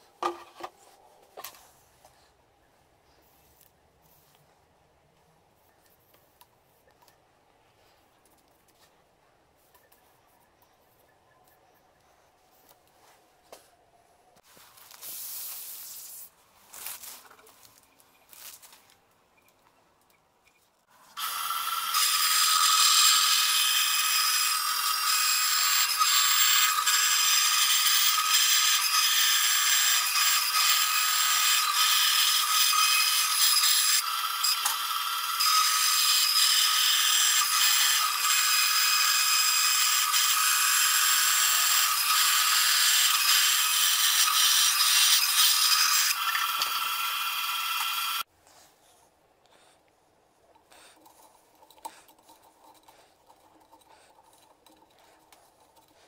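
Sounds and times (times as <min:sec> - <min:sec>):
band saw cutting board: 0:21.2 - 0:48.2.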